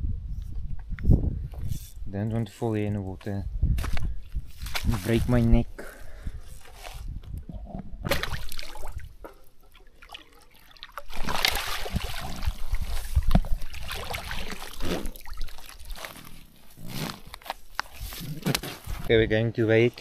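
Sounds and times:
water splashing and sloshing: 6.6 - 19.1
water streaming from net: 8.1 - 17.3.

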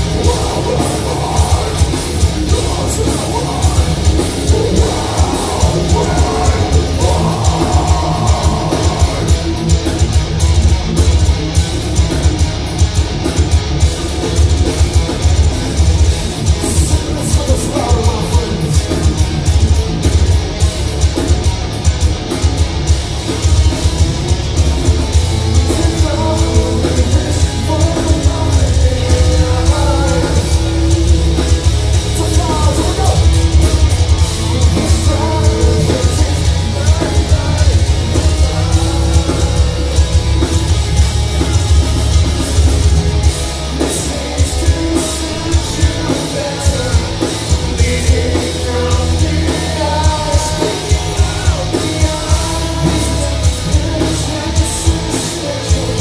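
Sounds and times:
heavy metal band playing live: 0.0 - 56.0
vocals: 0.0 - 56.0.

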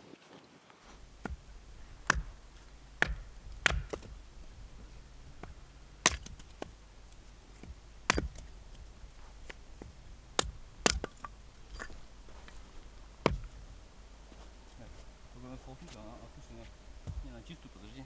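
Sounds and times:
axe chopping firewood: 1.0 - 4.6, 5.3 - 13.7, 17.0 - 17.3.

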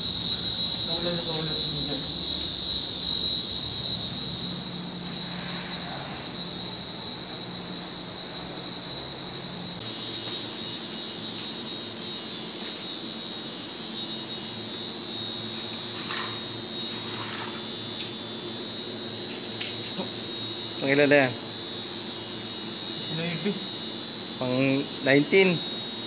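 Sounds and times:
machinery drone: 0.0 - 11.0
high-pitched whine: 0.0 - 26.0.

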